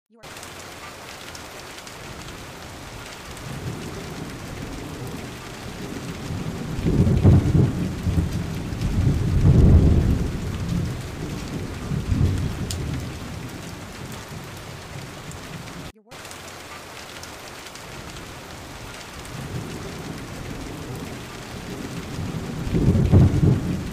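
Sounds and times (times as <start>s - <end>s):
steady rain falling: 0.1s - 23.9s
rolling thunder: 2.0s - 15.9s, 17.8s - 23.9s.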